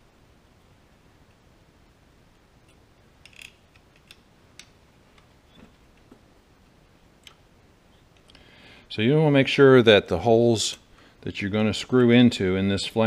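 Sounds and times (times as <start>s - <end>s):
small metal parts clicking: 2.7s - 4.8s.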